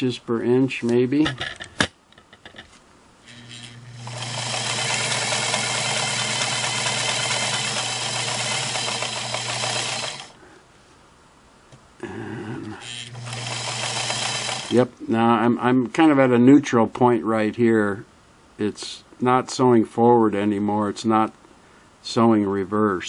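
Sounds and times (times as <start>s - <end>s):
sewing machine stitching: 3.3s - 10.3s, 12.8s - 14.9s.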